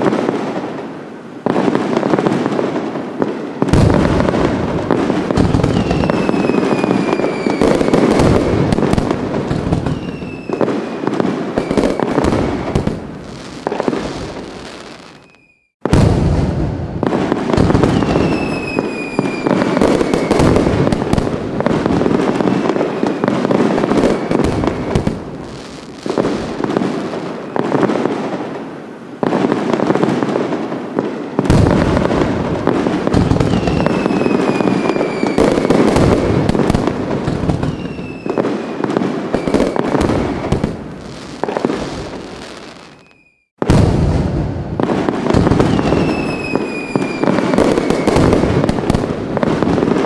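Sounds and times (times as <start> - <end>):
fireworks crackling and popping: 0.0 - 50.0
whistling rockets: 1.5 - 28.1, 30.1 - 50.0.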